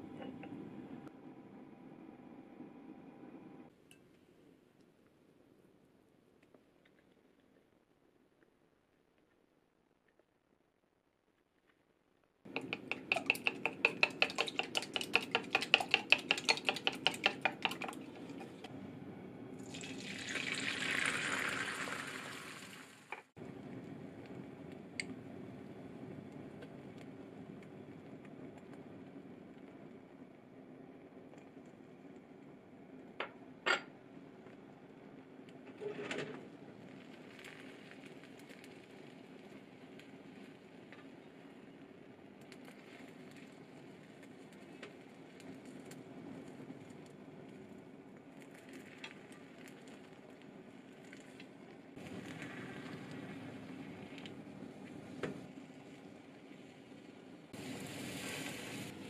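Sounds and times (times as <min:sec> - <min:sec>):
chopsticks clicking on iron pan: 0:12.5 - 0:18.0
egg sizzling in a hot pan: 0:12.5 - 0:18.7, 0:19.6 - 0:23.3, 0:36.7 - 0:47.6, 0:48.2 - 0:59.0
eggs being beaten in a jug: 0:12.5 - 0:18.7.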